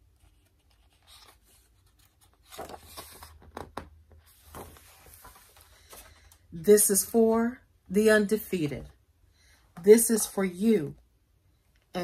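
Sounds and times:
book pages rustling: 0:00.0 - 0:06.5.

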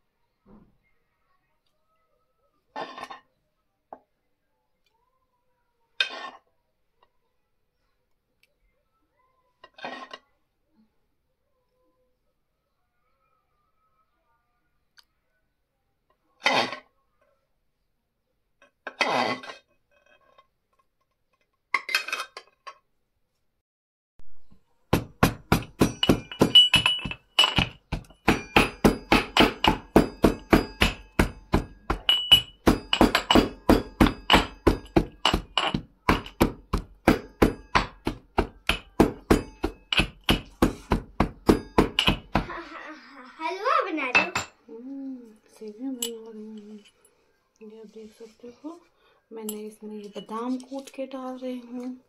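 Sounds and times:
pestle pounding in metal mortar: 0:24.9 - 0:42.5.

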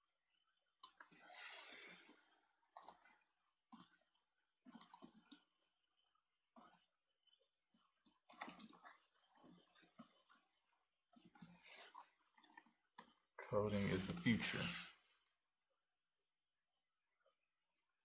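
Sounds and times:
typing on a keyboard: 0:02.8 - 0:04.0, 0:04.6 - 0:05.4, 0:06.6 - 0:06.8, 0:08.1 - 0:10.4, 0:11.1 - 0:13.2.

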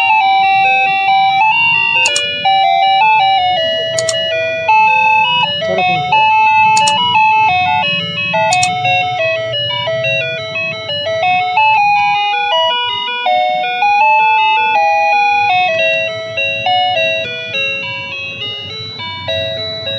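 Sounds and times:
sharp click: 0:02.0 - 0:02.4, 0:04.0 - 0:04.2, 0:06.8 - 0:07.0, 0:08.5 - 0:08.8.

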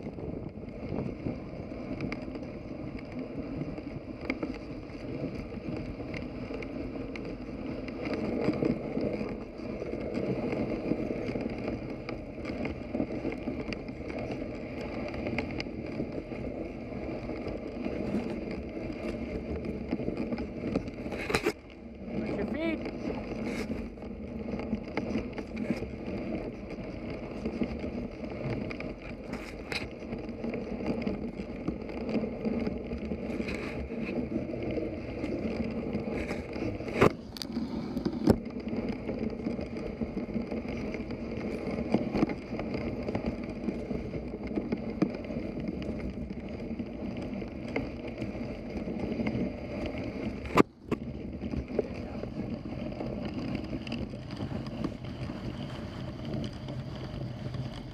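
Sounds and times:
sled runners rushing through snow: 0:00.0 - 0:57.9.

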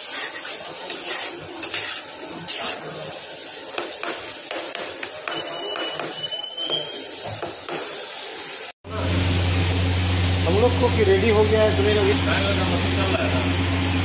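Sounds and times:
metal spoon scraping a pan: 0:00.0 - 0:03.2.

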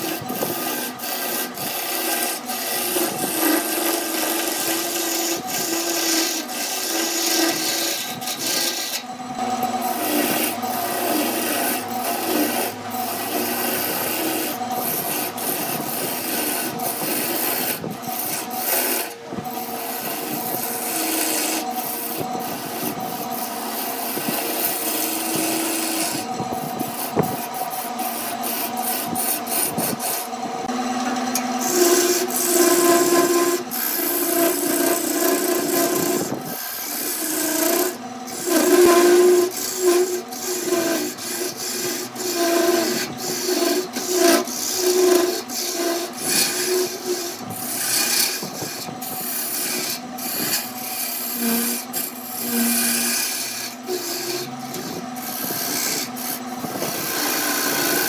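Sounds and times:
lathe tool scraping wood: 0:00.0 - 0:58.0.

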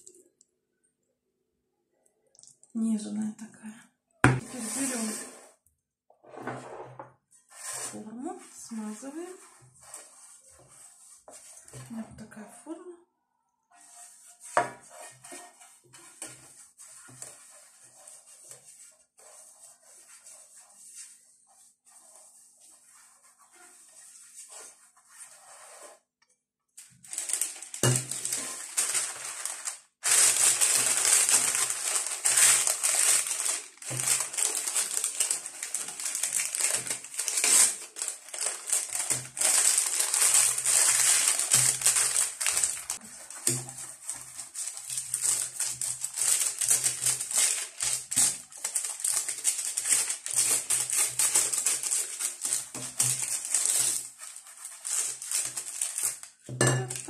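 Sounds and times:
parchment paper crinkling: 0:26.8 - 0:57.0.

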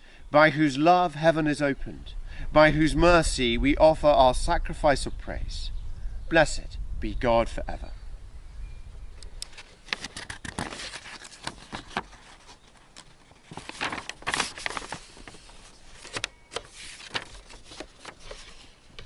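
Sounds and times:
paper pages rustling: 0:09.4 - 0:19.0.

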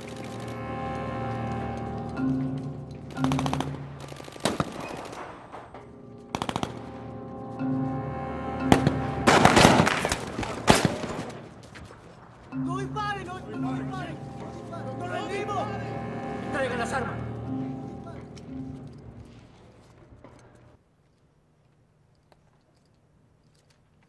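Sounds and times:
film score music with low notes: 0:00.0 - 0:20.8
machine-gun fire: 0:03.2 - 0:05.4, 0:06.3 - 0:06.9, 0:08.8 - 0:11.4
single gunshots: 0:09.3 - 0:11.4.

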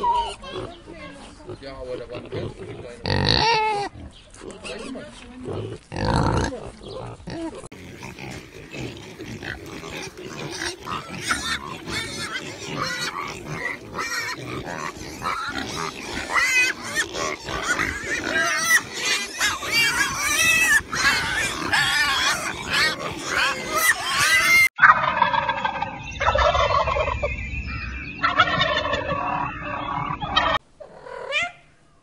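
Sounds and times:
pigs grunting and squealing: 0:00.0 - 0:24.7, 0:28.2 - 0:31.5.

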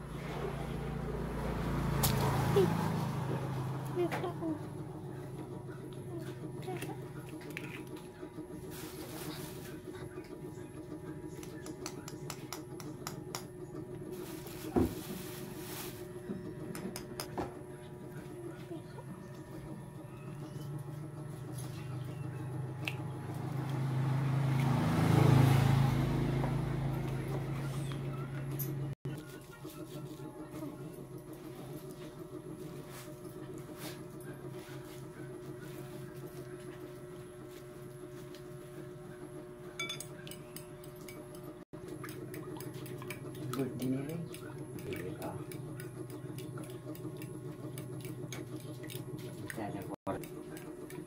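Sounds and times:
vehicle engine passing by: 0:00.0 - 0:05.7, 0:19.3 - 0:29.0
spoon clinking against glass bowl: 0:39.8 - 0:41.2.

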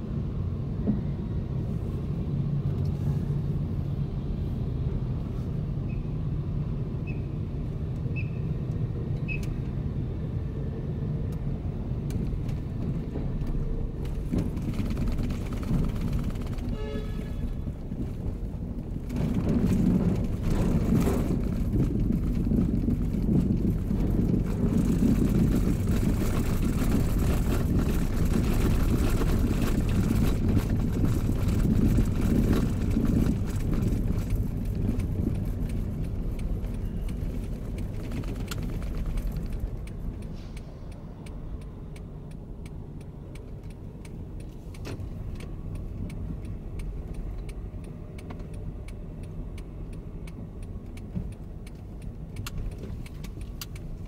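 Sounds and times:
engine and road hum: 0:00.0 - 0:54.0
light rattling clicks: 0:22.9 - 0:54.0.

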